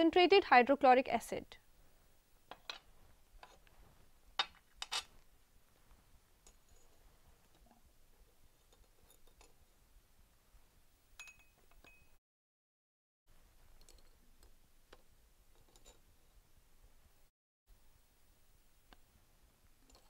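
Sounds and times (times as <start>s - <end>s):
faint glassware clinks: 11.2s - 12.2s.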